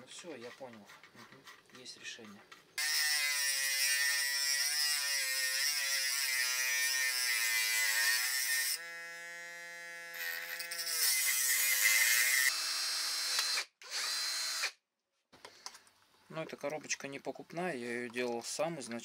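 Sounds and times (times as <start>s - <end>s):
rotary tool whine cutting metal: 2.8s - 14.7s.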